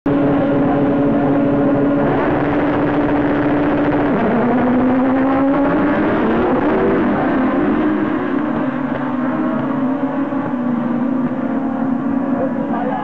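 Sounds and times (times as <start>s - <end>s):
buggy engines revving high: 0.1s - 13.0s.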